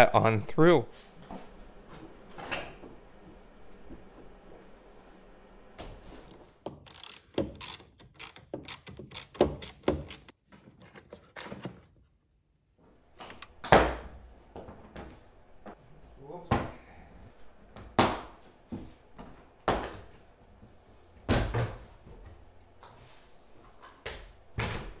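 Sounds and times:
wrench clicking on battery terminal: 6.9 - 10.3.

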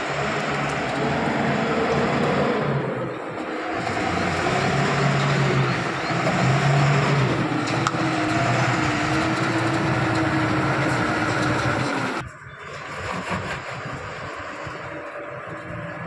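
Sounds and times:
truck diesel engine running: 0.0 - 16.0.

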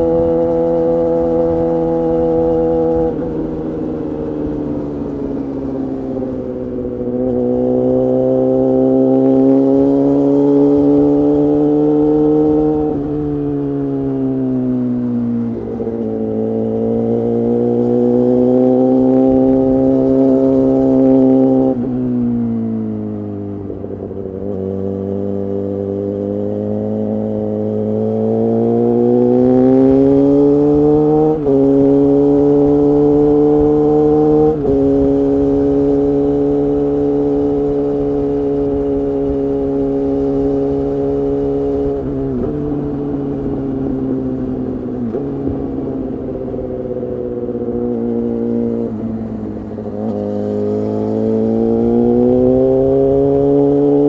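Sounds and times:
motorcycle engine revving: 0.0 - 54.0.

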